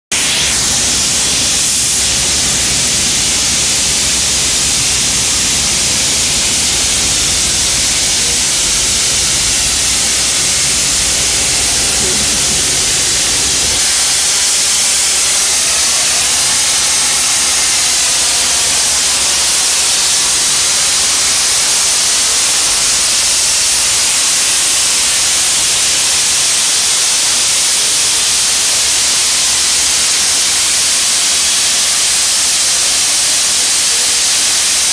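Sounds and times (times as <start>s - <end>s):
steam hissing: 0.1s - 34.9s
low rumble: 6.4s - 14.2s.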